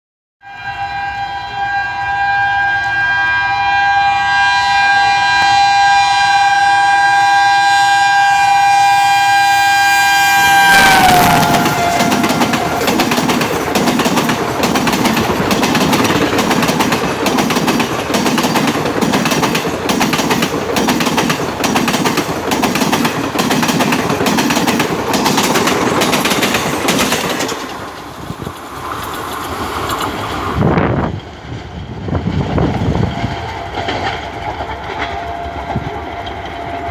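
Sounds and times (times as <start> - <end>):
locomotive horn blast: 0.4 - 13.0
train wheels clickety-clack: 11.4 - 36.9.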